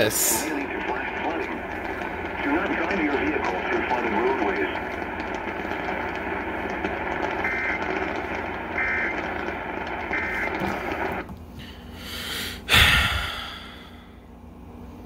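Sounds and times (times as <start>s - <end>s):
radio hiss: 0.0s - 11.3s
two-tone data bursts: 0.3s - 11.2s.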